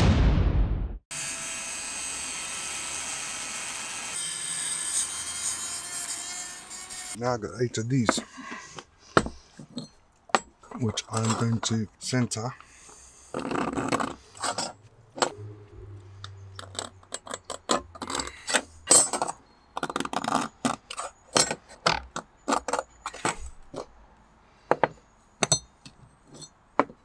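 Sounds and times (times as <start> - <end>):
metal scraping: 9.4 - 11.8, 13.3 - 23.9.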